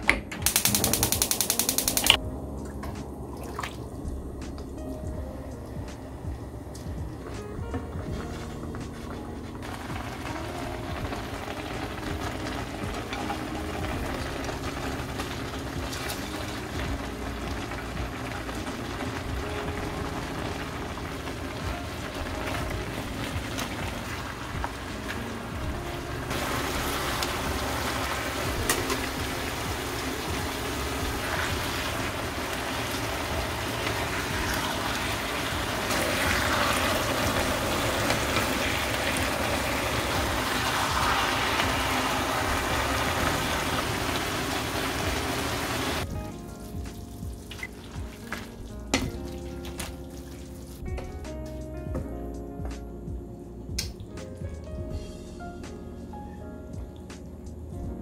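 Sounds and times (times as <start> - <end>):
food sizzling in a frying pan: 26.2 - 46.0.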